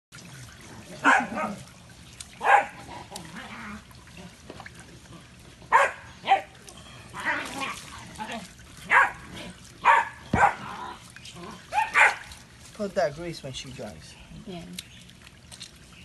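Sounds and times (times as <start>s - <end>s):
dog barking: 1.0s - 1.6s, 2.4s - 2.8s, 5.7s - 6.5s, 8.9s - 9.2s, 9.8s - 10.6s, 11.7s - 12.3s.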